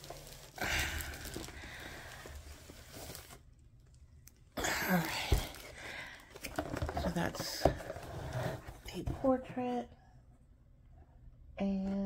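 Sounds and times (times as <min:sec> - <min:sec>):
plastic wrap rustling: 0:00.0 - 0:08.8
cardboard box scraping: 0:06.6 - 0:09.4.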